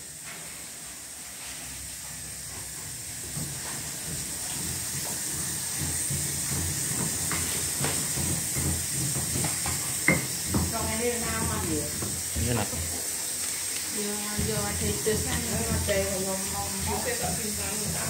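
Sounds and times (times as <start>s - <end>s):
high-pitched steam hiss: 0.0s - 18.0s.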